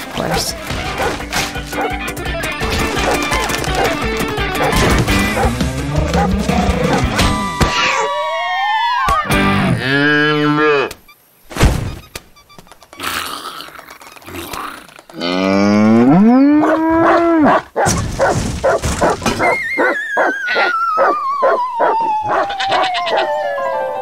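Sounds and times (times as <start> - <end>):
cartoon dog howling: 6.1 - 9.3, 16.1 - 17.6, 19.4 - 24.0.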